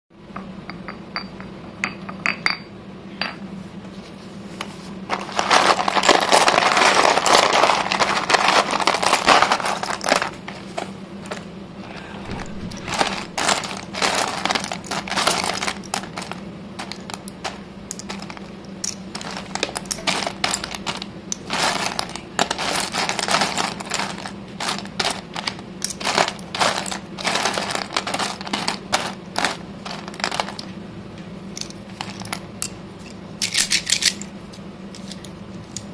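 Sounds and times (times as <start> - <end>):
low steady hum: 0.2 - 35.9
sticks clattering in a tray: 5.1 - 11.4, 12.2 - 30.7.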